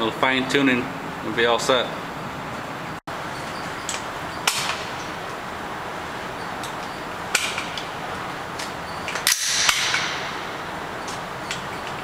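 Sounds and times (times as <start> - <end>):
steady background hiss: 0.0 - 12.0
rifle shots indoors: 9.3 - 10.7.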